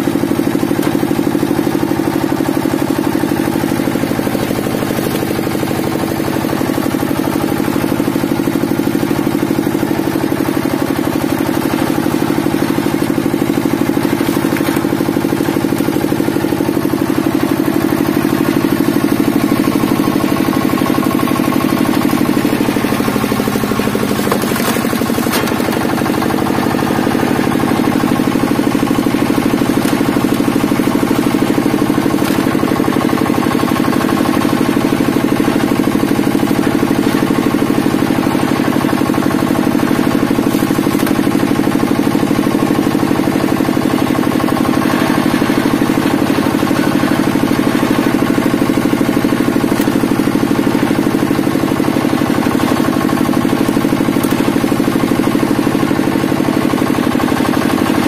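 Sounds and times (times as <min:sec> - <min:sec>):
hydraulic power unit running: 0:00.0 - 0:58.0
wood splitting cracks: 0:03.2 - 0:06.2, 0:11.4 - 0:17.2, 0:17.9 - 0:43.0, 0:48.1 - 0:51.2, 0:52.8 - 0:55.1.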